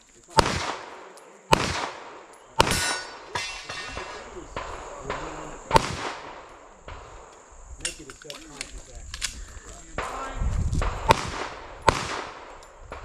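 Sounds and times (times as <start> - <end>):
handgun shots echoing: 0.3 - 9.4, 10.0 - 13.0.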